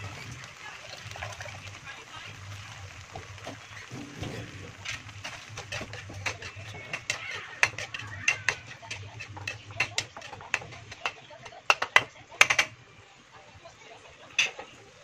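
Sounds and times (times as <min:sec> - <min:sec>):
metal spatula scraping a wok: 0:00.0 - 0:01.8, 0:02.6 - 0:12.7.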